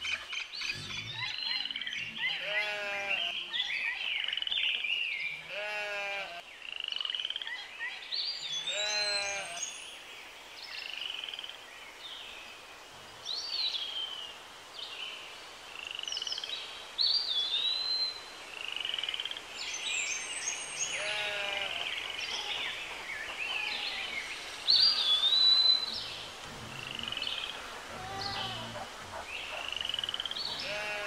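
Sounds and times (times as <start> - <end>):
birds chirping and singing: 0.0 - 10.0, 19.6 - 31.0
low buzzy bird calls: 20.6 - 31.0.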